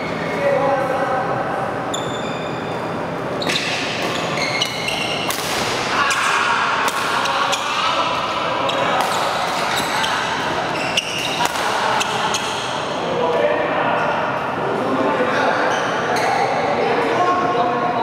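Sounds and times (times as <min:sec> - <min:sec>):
shoes squeaking on floor: 0:01.9 - 0:05.3, 0:08.6 - 0:12.8, 0:15.7 - 0:16.6
rackets striking shuttlecock: 0:03.4 - 0:07.8, 0:08.7 - 0:12.8.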